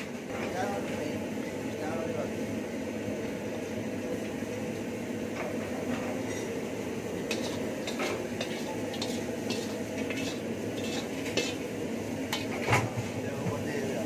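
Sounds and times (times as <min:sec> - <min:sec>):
kitchen hum: 0:00.0 - 0:14.0
metal ladle scraping a wok: 0:05.9 - 0:13.0.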